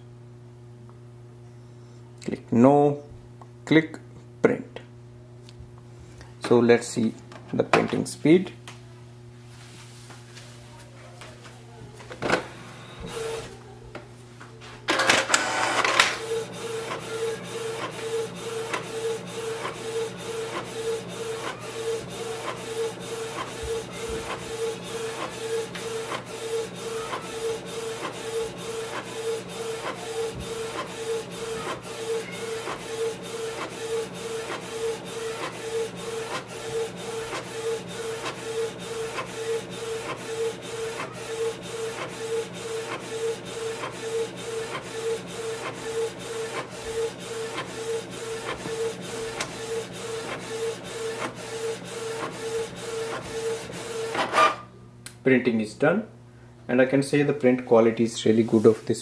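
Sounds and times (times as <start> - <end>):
inkjet printer printing: 12.0 - 13.6, 14.9 - 54.7
print-head carriage moving: 14.9 - 54.6.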